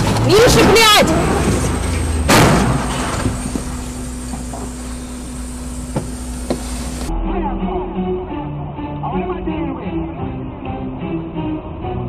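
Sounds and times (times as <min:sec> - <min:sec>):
truck crashing into car: 0:00.0 - 0:04.8
vehicle low rumble: 0:00.0 - 0:10.7.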